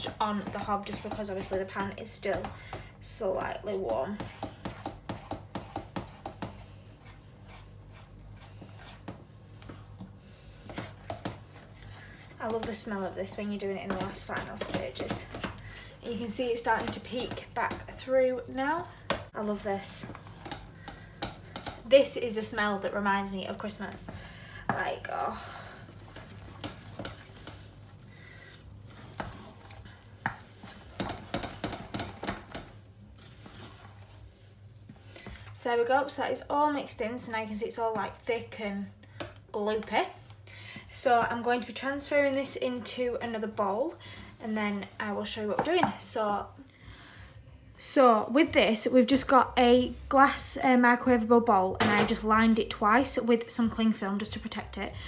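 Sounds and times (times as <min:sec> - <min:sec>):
wooden spoon scraping a saucepan: 0:00.0 - 0:36.5.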